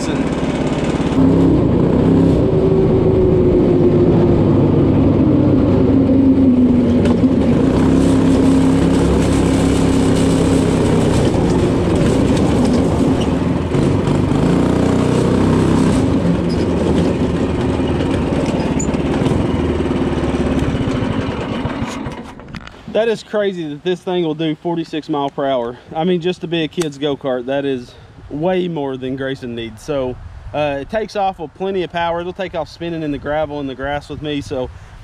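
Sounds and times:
go-kart engine running: 0.0s - 22.7s.

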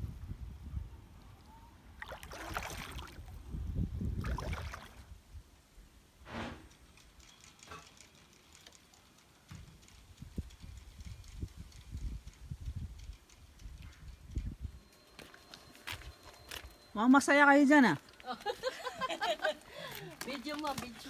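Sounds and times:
wind rumble on microphone: 0.0s - 1.5s, 3.1s - 5.4s, 9.8s - 14.8s
paddle strokes splashing water: 2.0s - 3.3s, 4.2s - 5.0s
short swish: 6.2s - 6.7s.

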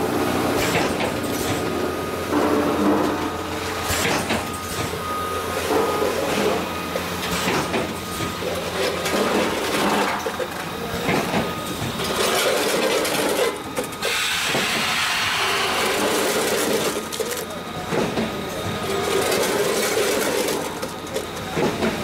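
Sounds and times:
packaging machine clattering: 3.9s - 14.7s, 15.8s - 22.0s.

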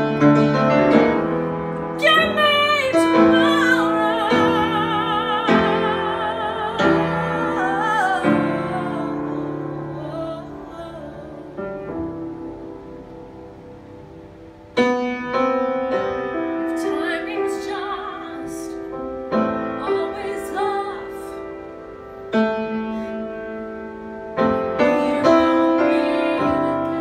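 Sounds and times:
piano playing slow chords: 0.0s - 27.0s
woman singing with vibrato: 2.0s - 12.5s, 16.7s - 21.6s, 24.8s - 27.0s.

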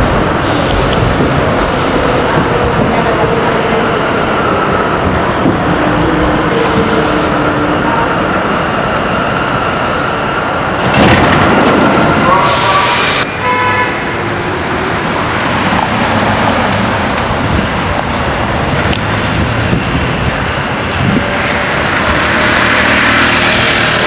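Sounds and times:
street traffic passing: 0.0s - 24.0s.

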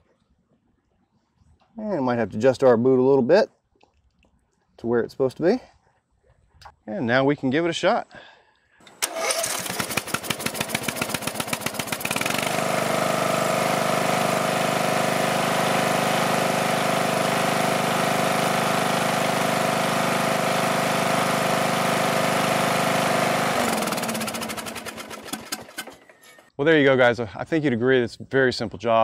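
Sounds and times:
electric starter cranking engine: 8.8s - 26.5s
engine winding down: 8.9s - 26.3s
mower engine running: 8.9s - 26.5s.

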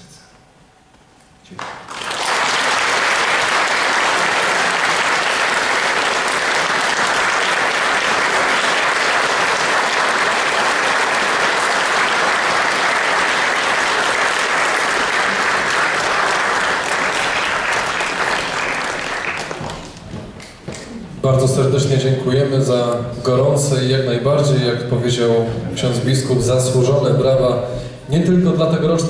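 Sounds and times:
audience applause: 1.6s - 20.9s.

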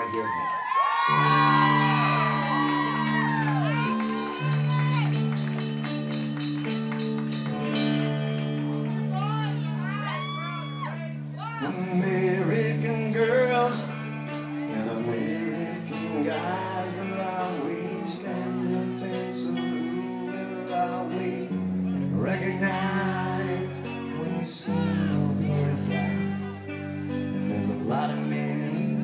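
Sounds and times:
rock band playing: 0.0s - 29.0s
man singing: 11.4s - 29.0s.

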